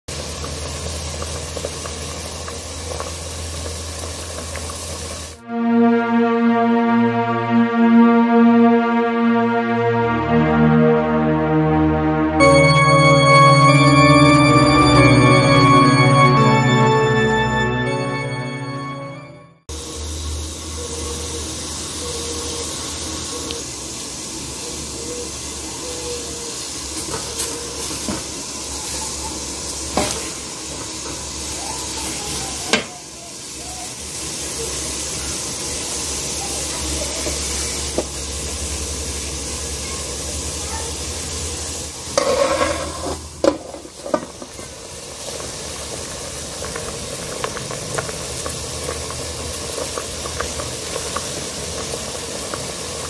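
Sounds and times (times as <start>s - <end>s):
water boiling in metal pot: 0.1s - 5.4s, 19.8s - 53.0s.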